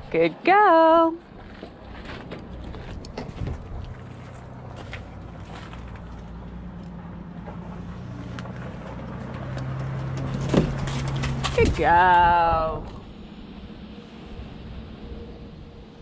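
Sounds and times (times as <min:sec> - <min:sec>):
vehicle engine humming: 0:00.0 - 0:16.0
hooves knocking on trailer ramp: 0:07.3 - 0:12.0.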